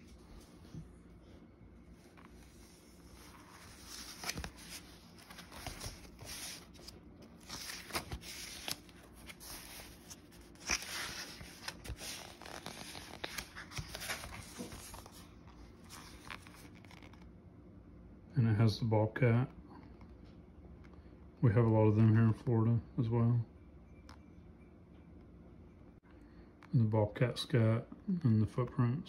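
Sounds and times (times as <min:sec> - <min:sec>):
book pages rustling and turning: 0:01.9 - 0:17.3.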